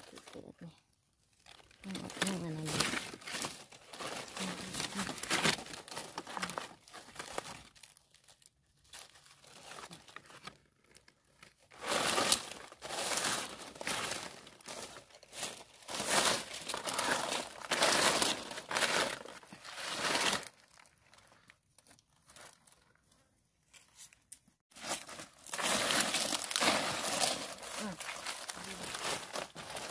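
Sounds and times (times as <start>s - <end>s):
dry leaves rustling and crackling: 1.4s - 10.0s, 11.7s - 20.9s, 24.7s - 29.9s.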